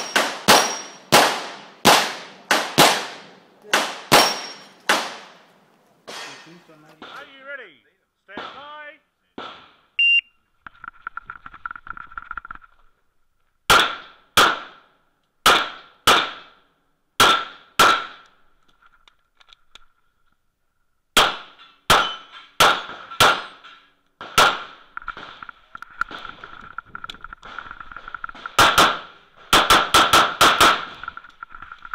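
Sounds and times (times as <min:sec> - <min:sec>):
pistol shots: 0:00.0 - 0:05.4, 0:08.4 - 0:08.7, 0:09.4 - 0:09.9, 0:13.7 - 0:14.8, 0:15.4 - 0:16.6, 0:17.2 - 0:18.2, 0:21.2 - 0:23.6, 0:24.2 - 0:25.5, 0:28.4 - 0:31.0
shot timer beep: 0:10.0 - 0:10.4.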